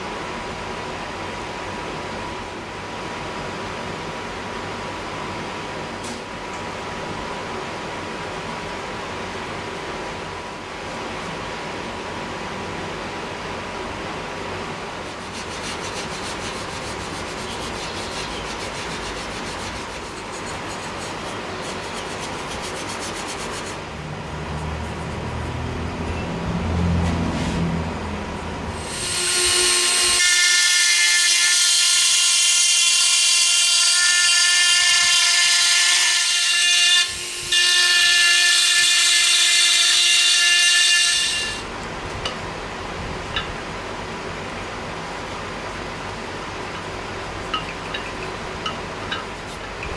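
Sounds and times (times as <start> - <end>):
power tool whine: 28.8 - 41.7.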